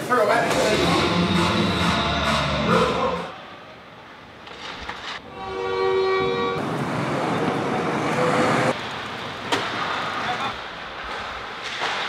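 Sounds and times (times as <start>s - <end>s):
arena horn blowing: 5.2s - 6.6s.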